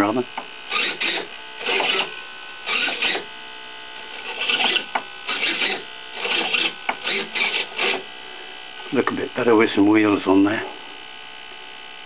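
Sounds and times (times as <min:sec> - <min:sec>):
servo whirring: 0:00.4 - 0:03.4, 0:04.0 - 0:08.2.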